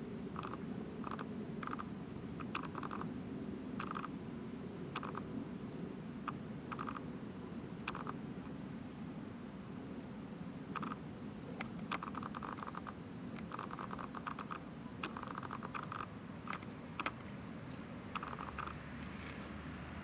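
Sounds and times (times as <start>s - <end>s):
beaver chewing teeth clicking: 0.4s - 3.1s, 3.8s - 4.1s, 5.0s - 5.2s, 6.3s - 7.0s, 7.9s - 8.2s, 10.8s - 11.0s, 11.6s - 17.2s, 18.2s - 18.8s.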